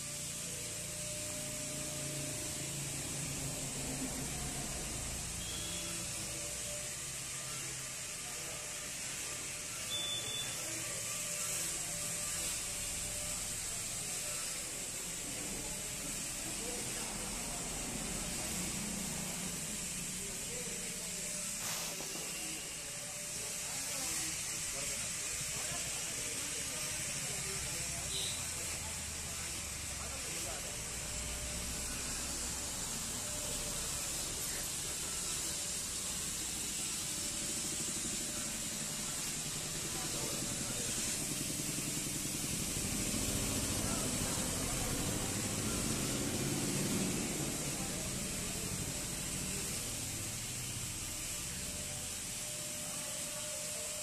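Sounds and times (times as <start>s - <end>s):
faint indistinct voices: 0.0s - 54.0s
steady hiss: 0.0s - 54.0s
short high beep: 5.4s - 6.1s, 9.9s - 10.6s.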